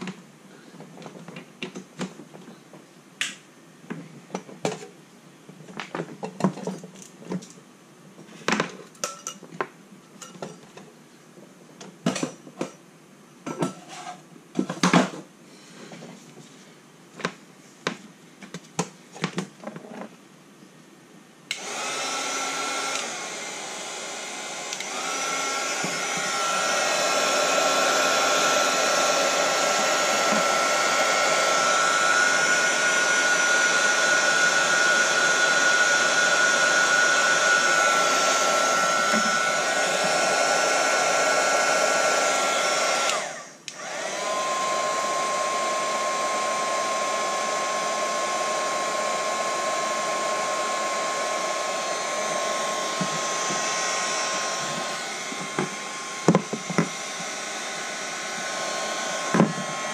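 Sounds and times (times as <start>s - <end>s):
heat gun blowing with whine: 21.5s - 59.9s.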